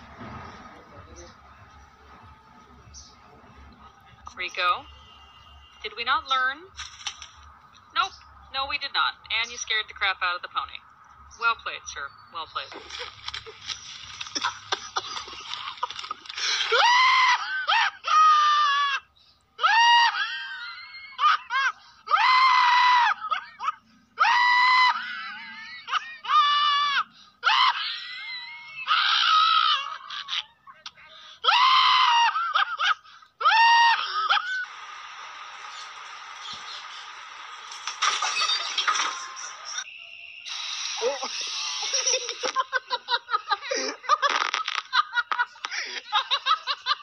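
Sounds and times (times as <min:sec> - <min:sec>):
steady hiss: 0:34.6 - 0:38.8, 0:39.4 - 0:42.6.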